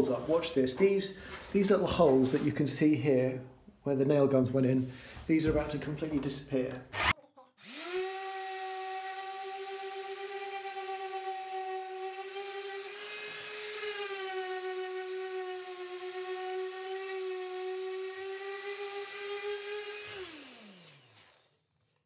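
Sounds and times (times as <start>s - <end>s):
orbital sander whining: 6.8s - 21.6s.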